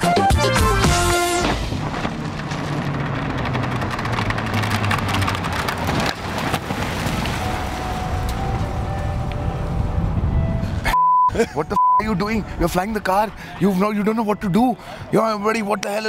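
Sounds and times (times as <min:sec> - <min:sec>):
car engine: 0:00.6 - 0:10.9.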